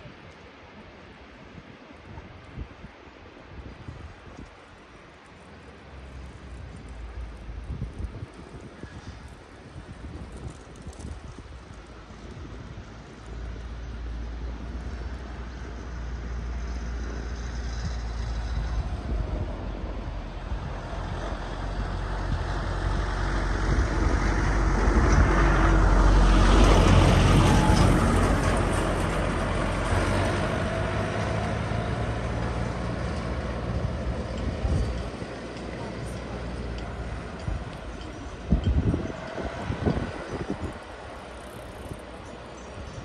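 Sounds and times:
motor vehicle passing: 16.0s - 42.8s.

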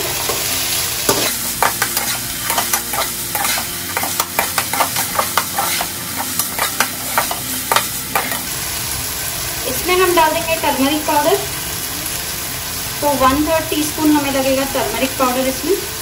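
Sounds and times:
vegetables sizzling in hot oil: 0.0s - 16.0s
metal spoon tapping and scraping pan: 1.1s - 8.5s.

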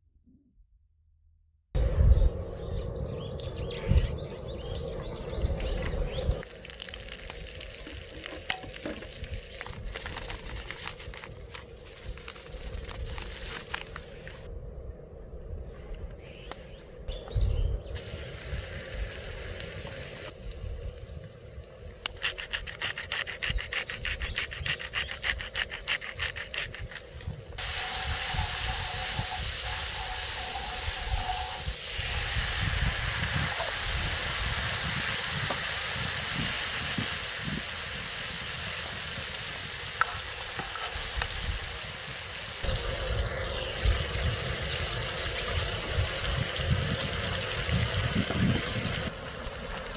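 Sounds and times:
oil sizzling on a griddle: 18.0s - 22.4s, 27.6s - 49.9s.

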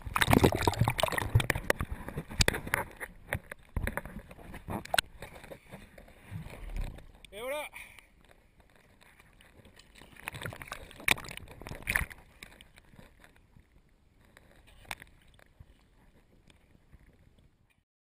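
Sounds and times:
sea water sloshing and splashing: 0.0s - 7.2s, 8.9s - 13.3s.

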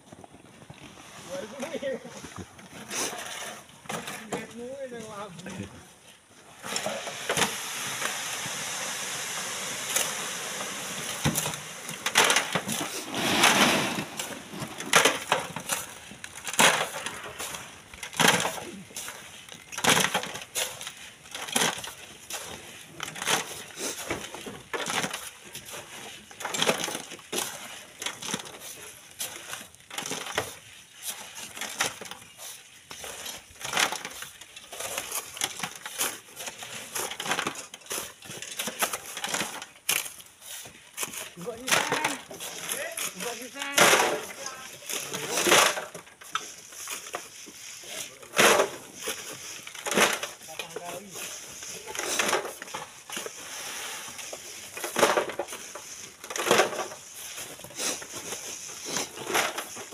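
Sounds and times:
sand sliding hiss: 6.4s - 16.3s, 52.9s - 54.8s
stones knocking and scraping: 11.0s - 59.9s.

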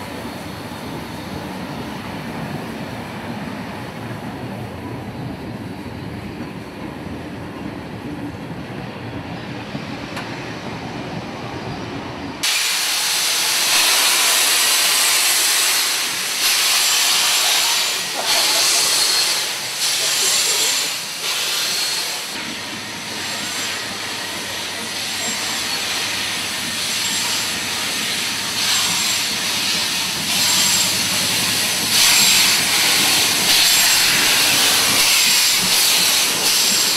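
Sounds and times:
railway carriages rumbling: 0.0s - 36.9s
steam locomotive hissing: 11.5s - 36.9s.

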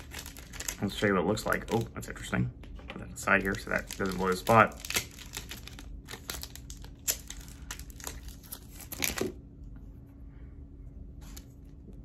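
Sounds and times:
candy wrapper crinkling and tearing: 0.0s - 2.1s, 3.3s - 9.4s.

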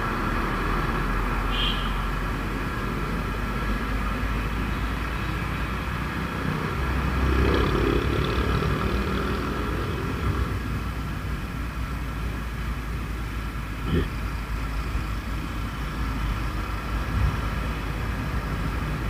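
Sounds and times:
road noise: 0.0s - 19.0s.

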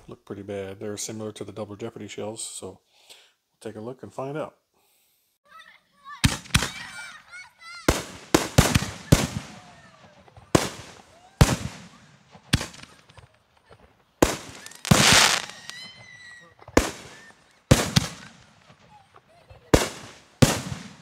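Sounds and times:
firework shells bursting: 7.9s - 21.0s.

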